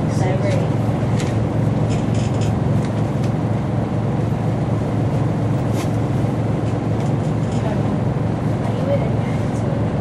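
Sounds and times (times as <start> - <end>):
diesel bus engine idling: 0.0 - 10.0.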